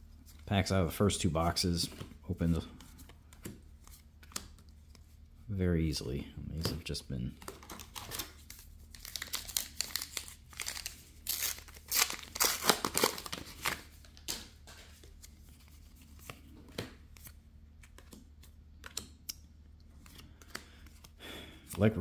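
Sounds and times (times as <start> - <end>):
wrapper tearing and crinkling: 7.6 - 13.9
cards clicking: 18.8 - 19.4.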